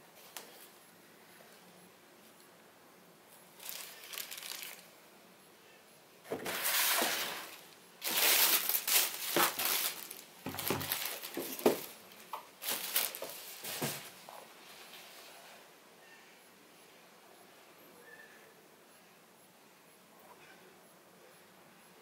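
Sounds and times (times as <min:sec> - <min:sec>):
tissue paper crinkling: 0:03.6 - 0:04.9, 0:06.5 - 0:14.0.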